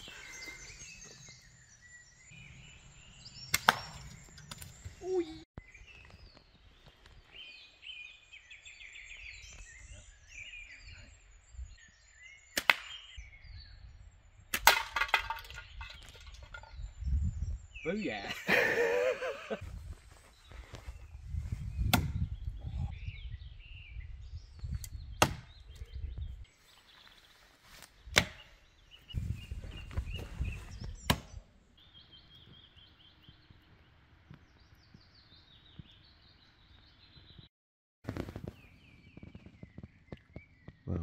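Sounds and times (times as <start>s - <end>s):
axe thudding into wood: 14.5s - 16.5s, 21.8s - 22.3s, 25.2s - 25.6s, 28.1s - 28.5s, 31.0s - 31.4s.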